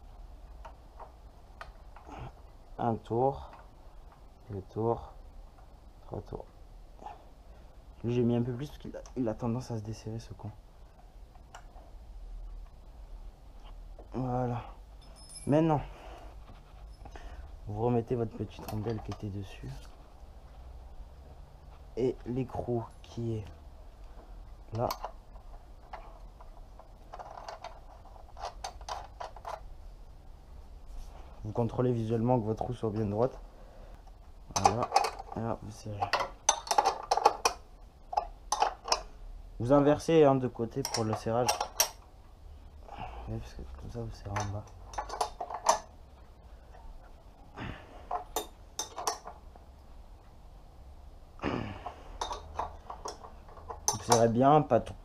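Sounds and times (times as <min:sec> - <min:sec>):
spanner clinking on metal nut: 0:15.0 - 0:15.7, 0:36.0 - 0:39.1, 0:40.8 - 0:42.0, 0:44.2 - 0:45.9, 0:48.1 - 0:49.4, 0:52.2 - 0:54.4.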